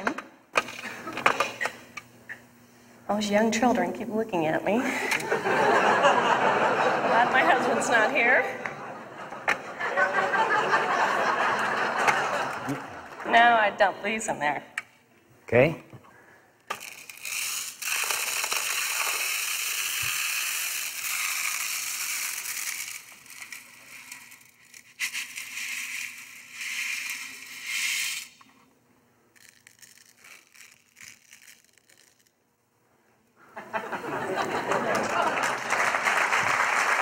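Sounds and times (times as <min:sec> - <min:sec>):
pebbles pouring into container: 0:16.7 - 0:28.3, 0:29.4 - 0:32.3.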